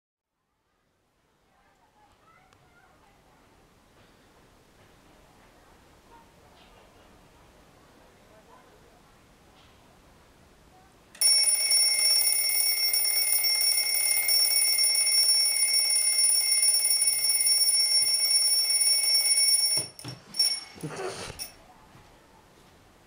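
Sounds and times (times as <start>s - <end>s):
alarm clock bells ringing: 11.2s - 21.5s
knocks and rattles of handling: 19.7s - 21.5s.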